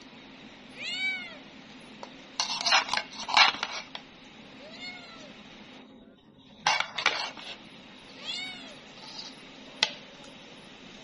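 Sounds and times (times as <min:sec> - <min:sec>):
cat meowing: 0:00.8 - 0:01.4, 0:04.6 - 0:05.3, 0:08.2 - 0:08.8
metal spoon scraping metal tray: 0:02.4 - 0:03.9, 0:06.7 - 0:07.6, 0:09.0 - 0:09.4.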